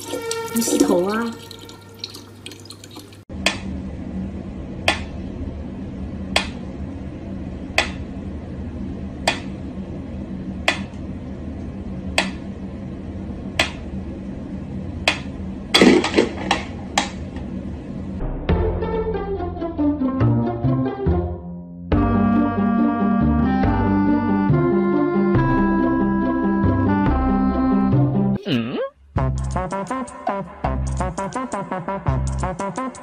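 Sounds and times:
low hum: 0:03.3 - 0:19.7.

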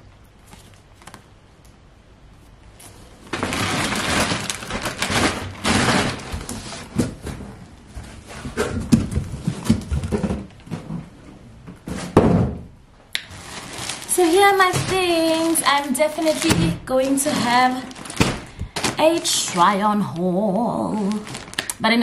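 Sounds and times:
plastic packaging crinkling: 0:02.7 - 0:07.4, 0:13.2 - 0:22.0.

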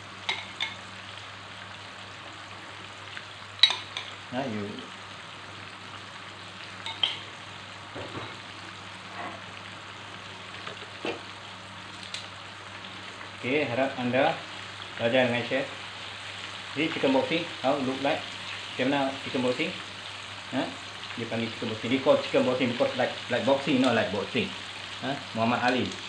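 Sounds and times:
chicken sizzling in a pan: 0:00.0 - 0:26.0
tongs moving in pan: 0:03.6 - 0:04.2, 0:06.8 - 0:07.3.

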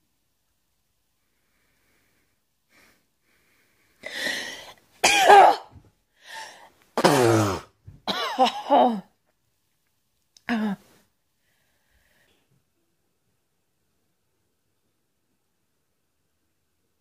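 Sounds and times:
woman sneezing: 0:05.0 - 0:05.7.

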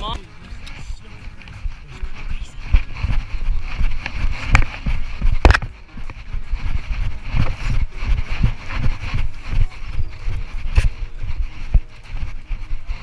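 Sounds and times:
clothing rustle: 0:00.0 - 0:13.0
footsteps on paved road: 0:00.0 - 0:13.0.

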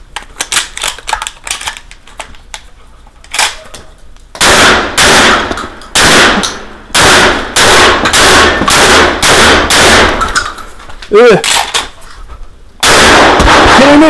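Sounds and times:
shotgun blasts with echo: 0:04.4 - 0:10.3, 0:12.8 - 0:14.0.

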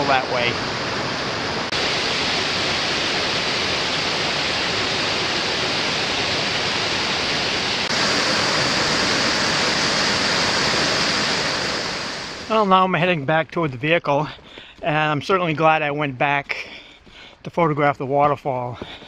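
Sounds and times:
waterfall rushing: 0:00.0 - 0:12.6.

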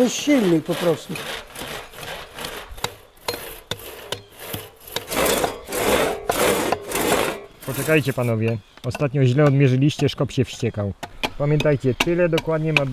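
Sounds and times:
crosscut saw cutting log: 0:00.0 - 0:08.5
wood scraping: 0:00.0 - 0:10.8.

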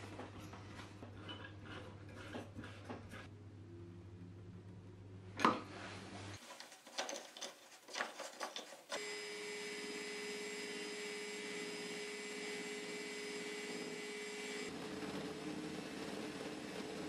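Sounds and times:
hands handling wood and metal parts: 0:06.4 - 0:09.0
electric drill running: 0:08.9 - 0:14.7.

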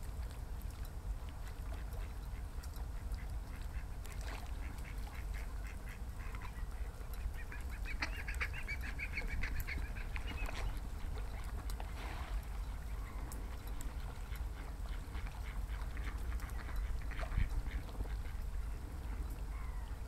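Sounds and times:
duck calling: 0:03.2 - 0:10.6.

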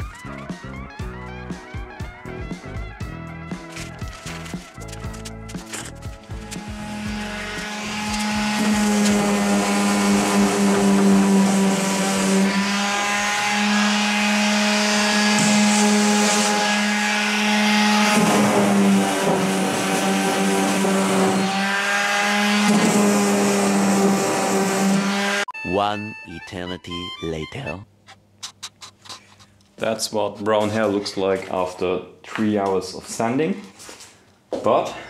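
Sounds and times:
orbital sander on wood: 0:06.2 - 0:25.5.

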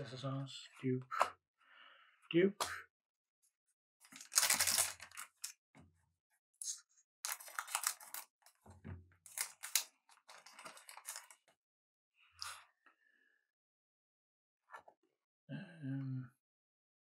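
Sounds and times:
cards rustling and crinkling: 0:04.1 - 0:05.6, 0:07.3 - 0:08.6, 0:09.3 - 0:11.5.

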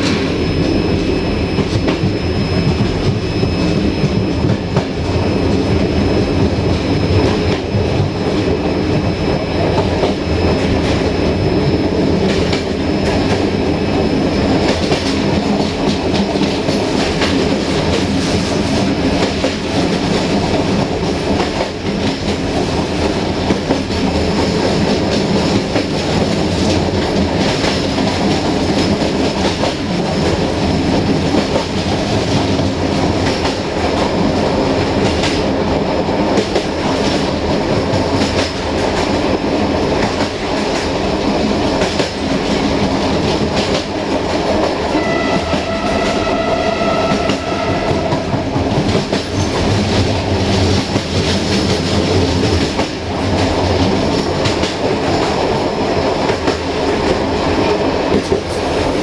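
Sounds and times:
train wheels clattering over rail joints: 0:47.2 - 0:55.6.

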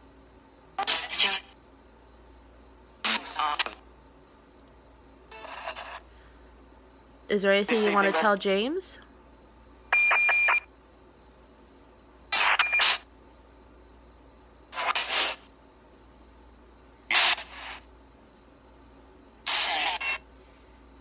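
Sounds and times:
bursts of radio noise: 0:07.7 - 0:08.4, 0:12.3 - 0:13.0, 0:14.7 - 0:15.5, 0:17.1 - 0:17.8, 0:19.5 - 0:20.2.

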